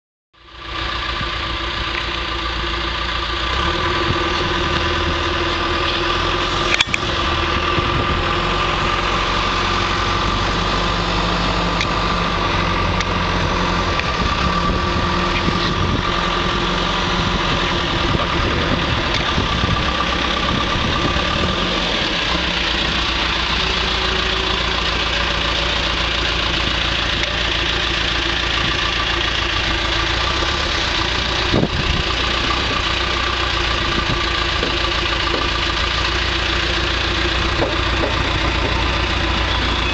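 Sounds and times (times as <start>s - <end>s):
diesel engine idling: 0.4s - 39.9s.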